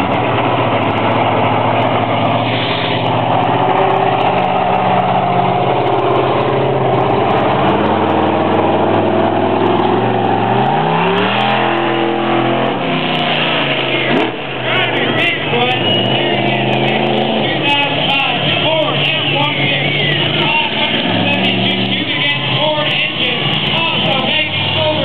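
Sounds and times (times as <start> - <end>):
monster truck engine revving: 0.0 - 25.0.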